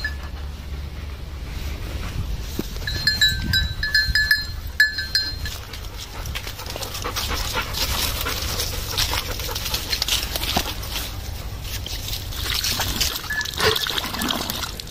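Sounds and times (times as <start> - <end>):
dog collars jingling: 0.0 - 0.4, 2.8 - 13.9
dog panting: 0.0 - 2.8, 4.4 - 12.0
paws rustling through dry leaves: 0.0 - 13.4.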